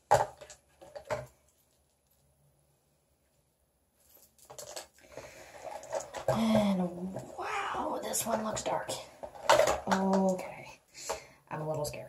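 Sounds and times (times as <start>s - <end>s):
rustling and clicking: 4.0s - 7.4s.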